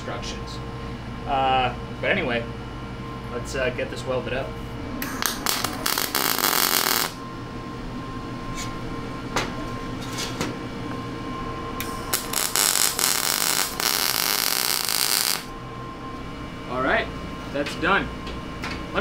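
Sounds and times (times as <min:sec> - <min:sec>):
welding arc crackling and hissing: 0:05.2 - 0:07.2, 0:11.8 - 0:15.5.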